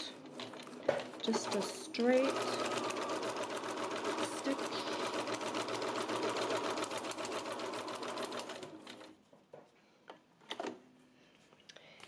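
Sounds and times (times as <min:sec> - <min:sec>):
sewing machine stitching: 0:00.3 - 0:09.2.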